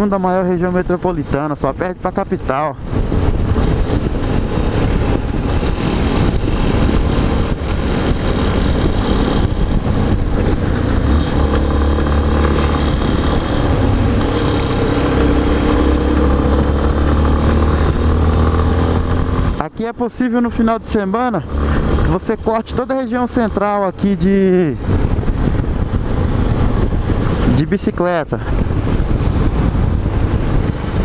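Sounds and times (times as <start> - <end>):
wind and road noise: 0.0 - 31.0
motorcycle engine running: 2.8 - 19.6.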